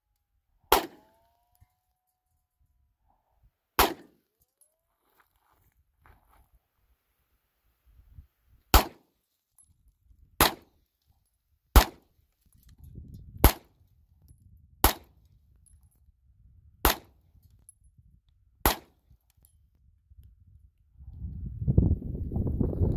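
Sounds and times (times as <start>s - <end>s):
handgun shots: 0.7s - 1.3s, 3.8s - 4.2s, 8.7s - 9.1s, 10.4s - 10.7s, 11.8s - 12.1s, 13.4s - 13.7s, 14.8s - 15.2s, 16.8s - 17.1s, 18.6s - 18.9s.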